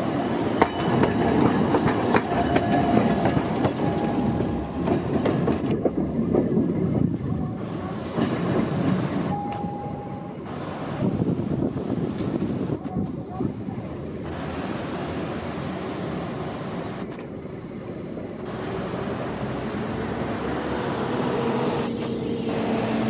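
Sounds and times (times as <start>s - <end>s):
tram wheels clattering on rails: 0.0s - 10.1s
tram rumble: 0.0s - 23.0s
wind on microphone: 1.0s - 14.2s.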